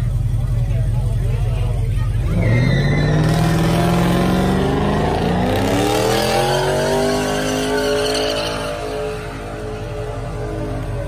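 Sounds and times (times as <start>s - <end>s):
car engine revving hard: 2.2s - 11.0s.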